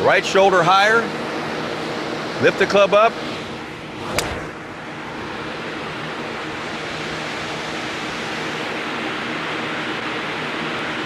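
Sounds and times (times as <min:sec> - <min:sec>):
electric fans blowing: 0:00.0 - 0:11.0
golf club striking ball: 0:04.0 - 0:04.6.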